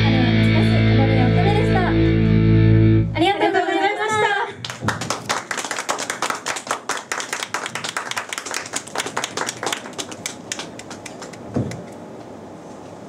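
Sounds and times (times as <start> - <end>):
audience clapping: 4.6 - 12.0.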